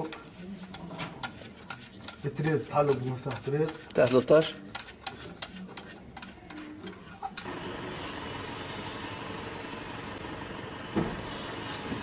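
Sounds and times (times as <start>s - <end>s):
steady mechanical drone: 7.4s - 12.0s
thump: 11.0s - 11.3s.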